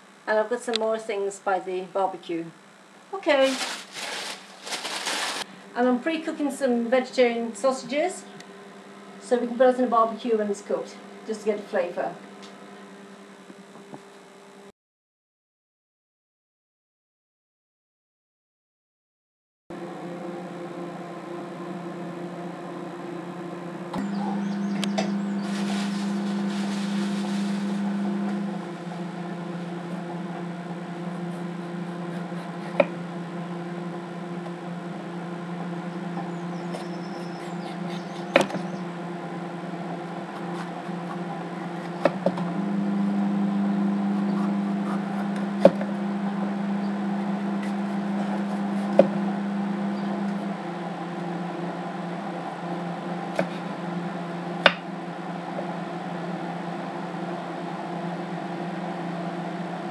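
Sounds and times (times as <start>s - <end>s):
microwave oven humming: 0.0s - 14.7s, 19.7s - 59.9s.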